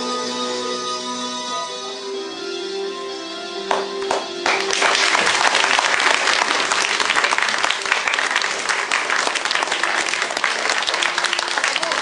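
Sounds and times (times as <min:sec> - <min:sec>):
show music: 0:00.0 - 0:12.0
audience applause: 0:03.7 - 0:12.0.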